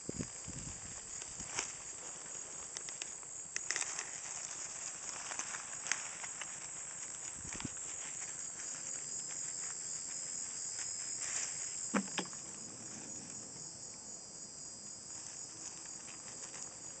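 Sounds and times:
insects chirping: 0.0s - 17.0s
light crackles: 0.2s - 13.6s.

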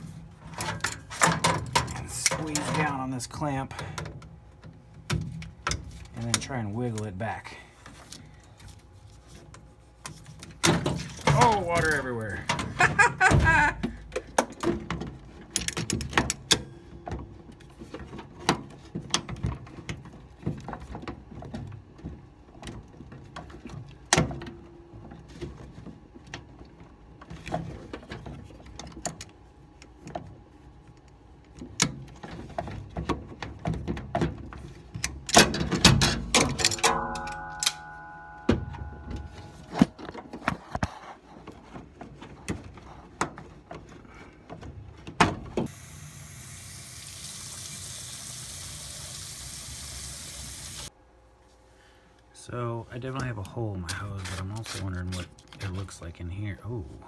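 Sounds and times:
tools clicking and rattling on plastic: 13.8s - 24.6s, 31.5s - 37.8s
steady hum: 22.0s - 47.0s.

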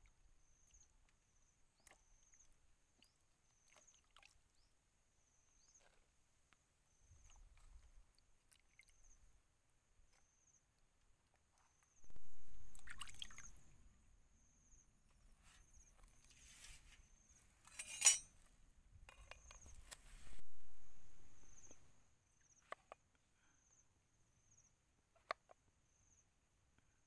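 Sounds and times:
water splashing in metal basin: 12.1s - 13.6s.

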